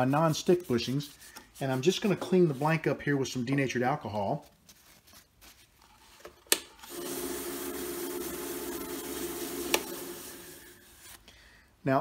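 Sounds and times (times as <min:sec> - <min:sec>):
paper towel rubbing with hiss: 0:00.0 - 0:02.9, 0:07.6 - 0:11.2
lathe humming: 0:06.9 - 0:11.0.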